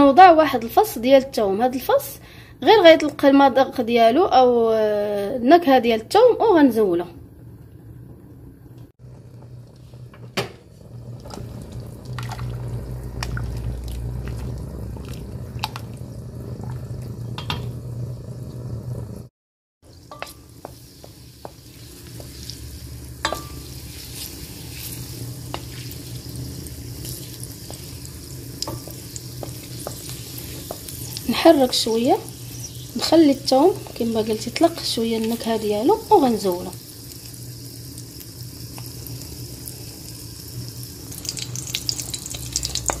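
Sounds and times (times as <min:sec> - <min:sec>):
butter sizzling in a pot: 0:09.0 - 0:43.0.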